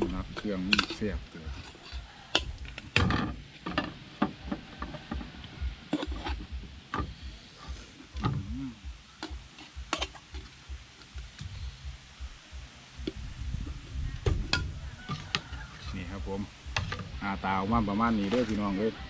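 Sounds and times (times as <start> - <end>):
low rumble: 10.7 - 19.0.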